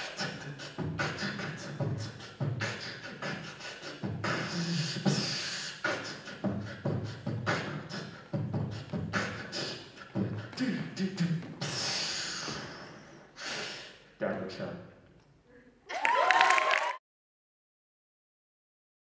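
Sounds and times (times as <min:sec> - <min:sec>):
beatboxing into a microphone: 0:00.0 - 0:14.2.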